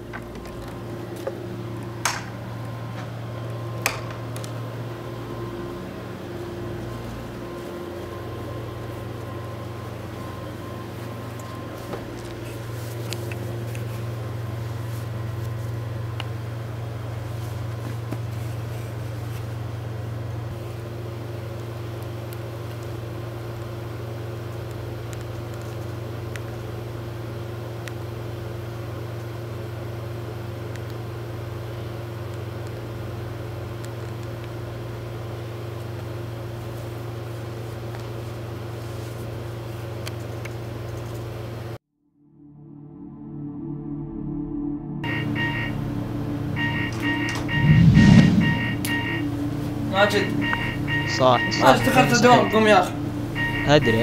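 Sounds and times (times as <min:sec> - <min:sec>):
low droning hum: 0:00.0 - 0:21.0, 0:42.5 - 0:54.0
faint high steady tone: 0:45.0 - 0:54.0.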